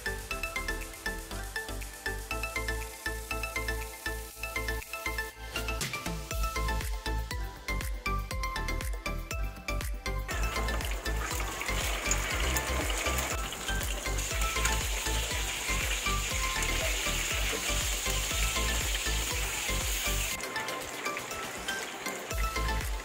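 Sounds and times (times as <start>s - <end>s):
chicken sizzling in frying pan: 10.3s - 23.0s.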